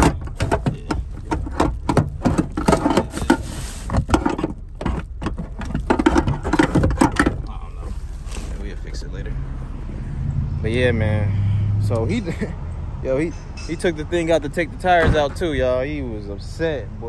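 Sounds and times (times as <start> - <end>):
small hard objects clattering: 0.0 - 8.8.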